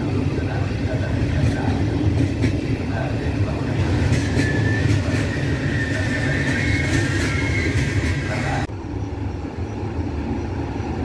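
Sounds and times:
train coaches rumbling past: 0:00.0 - 0:11.0
high wheel squeal: 0:03.8 - 0:08.7.

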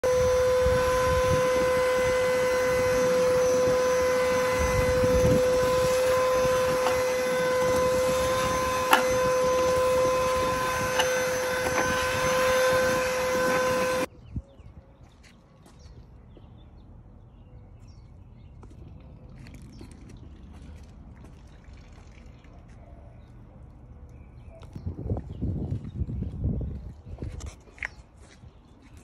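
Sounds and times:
vacuum motor whine: 0:00.0 - 0:14.1.

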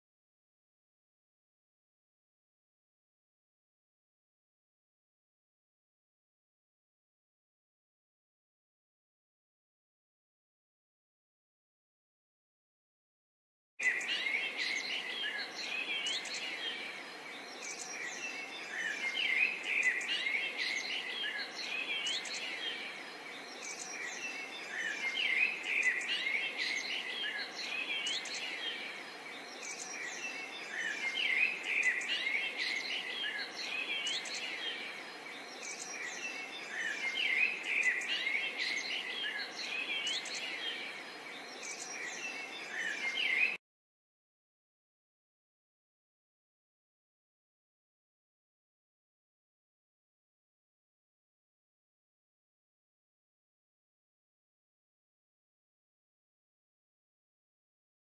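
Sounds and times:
many birds chirping: 0:13.8 - 0:43.6.

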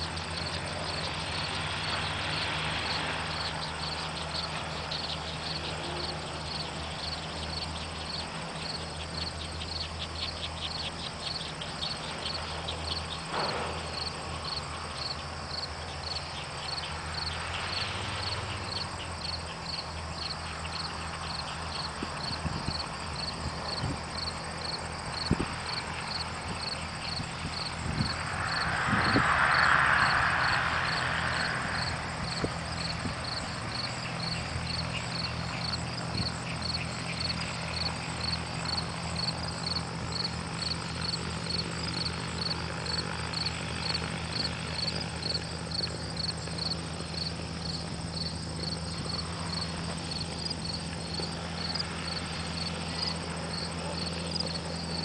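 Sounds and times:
crickets chirping: 0:00.0 - 0:55.0
distant aircraft engine hum: 0:00.0 - 0:55.0.

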